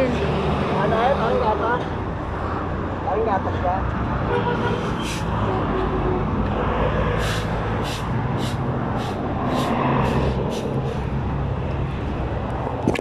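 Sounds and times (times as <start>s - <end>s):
passing road traffic: 0.0s - 13.0s
broom sweeping asphalt: 7.2s - 11.2s.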